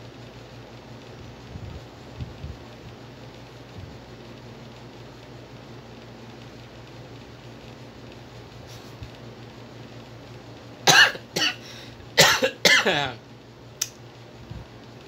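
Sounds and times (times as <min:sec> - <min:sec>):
person coughing: 0:10.9 - 0:13.2.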